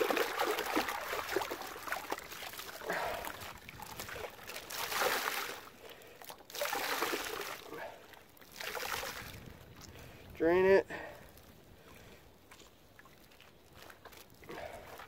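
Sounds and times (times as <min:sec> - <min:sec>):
water pouring into tub: 0:00.0 - 0:05.7, 0:06.5 - 0:07.7
hide sloshing in soapy water: 0:00.0 - 0:05.8.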